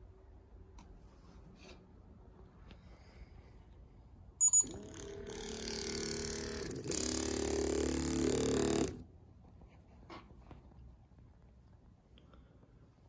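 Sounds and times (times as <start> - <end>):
quick electronic beeps: 4.4 - 4.8
lock mechanism whirring: 4.4 - 9.0.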